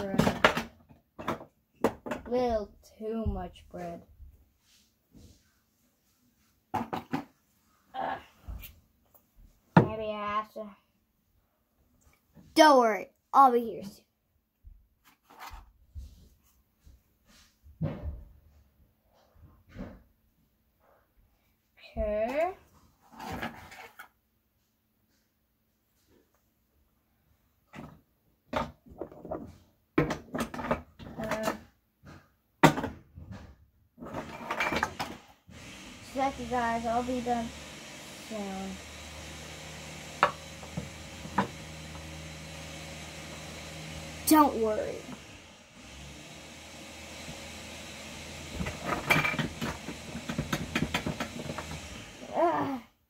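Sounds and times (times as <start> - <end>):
objects knocking and clattering: 0.0 - 2.6, 6.7 - 7.4, 27.7 - 35.3, 40.1 - 42.1, 48.4 - 51.9.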